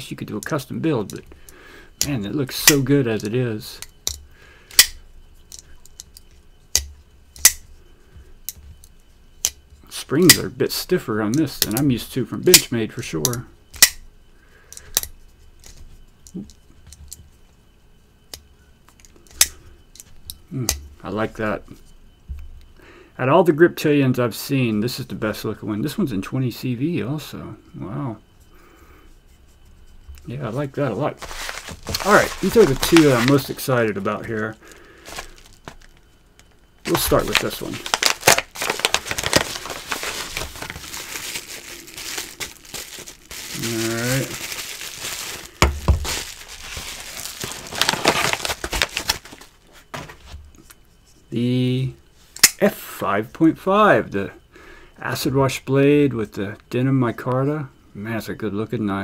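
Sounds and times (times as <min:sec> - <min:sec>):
paper mailer crinkling: 0:30.5 - 0:36.0, 0:36.8 - 0:50.2.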